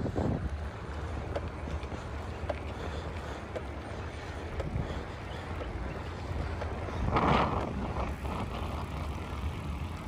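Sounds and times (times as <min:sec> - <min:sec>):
tyres rolling on concrete: 0:00.0 - 0:10.0
wind rumble on microphone: 0:00.0 - 0:10.0.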